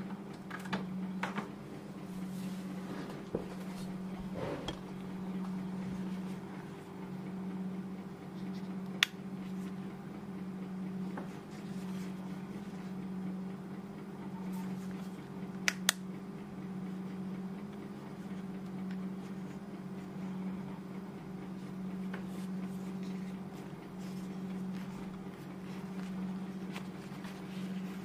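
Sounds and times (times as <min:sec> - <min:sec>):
steady low hum: 0:00.0 - 0:28.0
plastic headset rubbing: 0:21.6 - 0:28.0.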